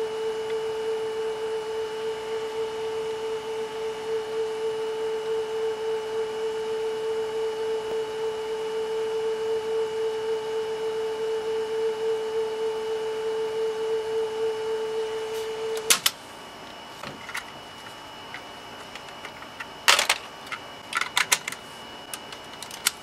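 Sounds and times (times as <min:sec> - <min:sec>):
steady pure tone from speaker: 0:00.0 - 0:23.0
cassette mechanism clicks and clunks: 0:15.7 - 0:16.2, 0:18.8 - 0:23.0.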